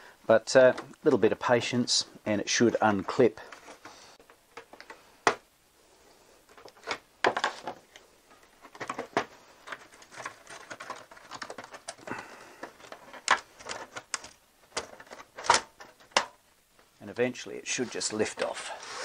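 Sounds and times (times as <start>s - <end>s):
plastic clips clicking and creaking: 6.5s - 16.4s.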